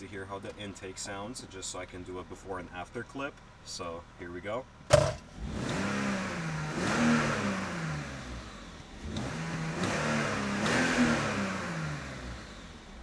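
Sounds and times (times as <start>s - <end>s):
car engine revving: 5.0s - 13.0s.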